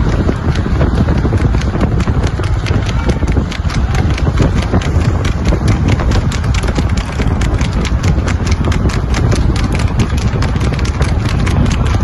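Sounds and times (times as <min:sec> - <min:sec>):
horse hooves clattering on road: 0:00.0 - 0:12.0
steady low rumble: 0:00.0 - 0:12.0.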